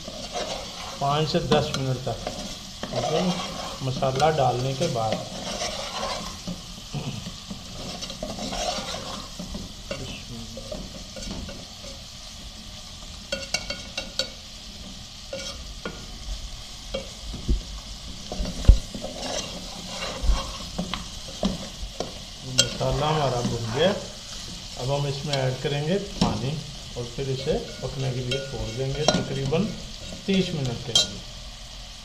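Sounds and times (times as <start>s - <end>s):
spoon scraping a pot: 0.0s - 12.0s, 15.3s - 16.0s, 18.2s - 24.7s
meat sizzling in a pot: 0.0s - 32.0s.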